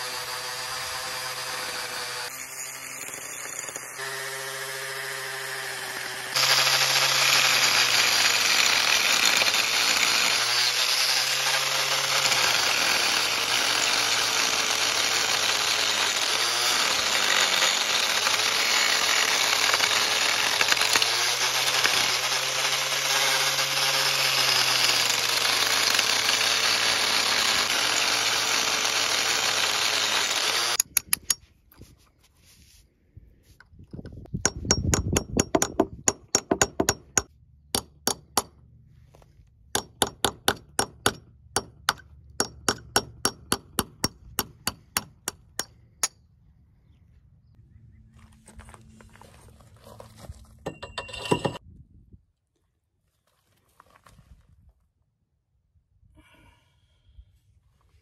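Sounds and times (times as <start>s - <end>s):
angle grinder on fiberglass: 0.0s - 30.9s.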